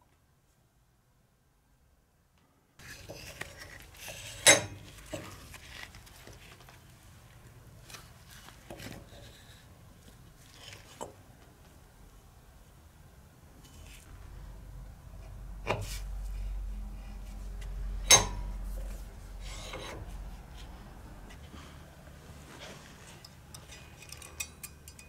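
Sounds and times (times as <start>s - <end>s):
metallic clinks and knocks: 23.1s - 25.0s.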